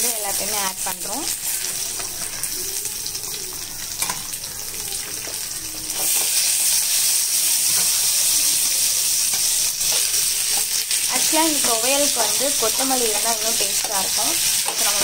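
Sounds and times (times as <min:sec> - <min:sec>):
food sizzling in oil: 0:00.0 - 0:15.0
spoon stirring and scraping: 0:05.9 - 0:10.9, 0:12.0 - 0:15.0.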